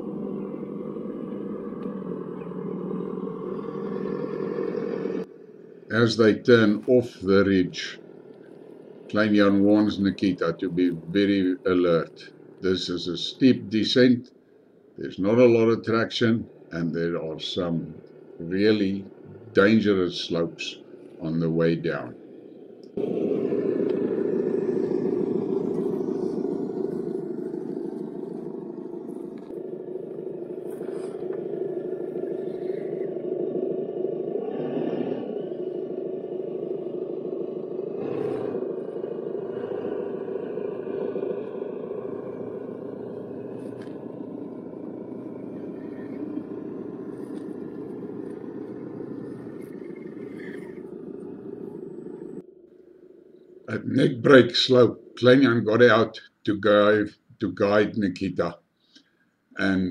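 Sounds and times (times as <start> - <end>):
truck driving downhill: 37.9 - 52.4.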